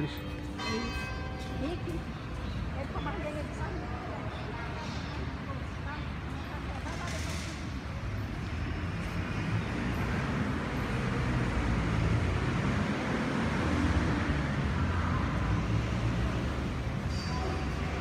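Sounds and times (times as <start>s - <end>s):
city street traffic rumble: 0.0s - 18.0s.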